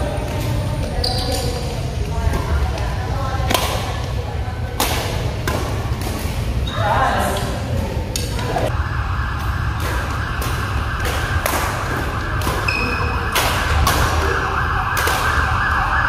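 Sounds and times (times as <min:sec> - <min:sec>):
rackets smacking shuttlecocks: 0:00.2 - 0:06.6, 0:09.4 - 0:15.5
shoe squeak on court floor: 0:01.0 - 0:01.6.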